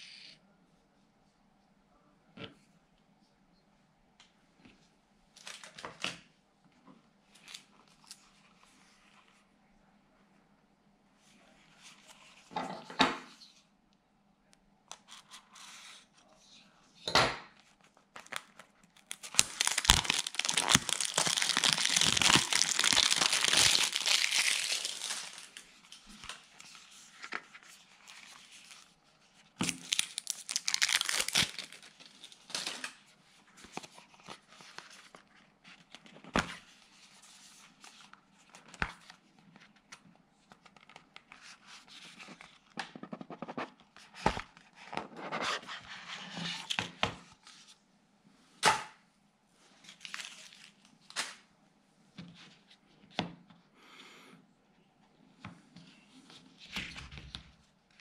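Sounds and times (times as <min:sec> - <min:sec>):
plastic shrink wrap tearing and crinkling: 0:18.2 - 0:27.0, 0:29.6 - 0:33.0, 0:49.8 - 0:51.4.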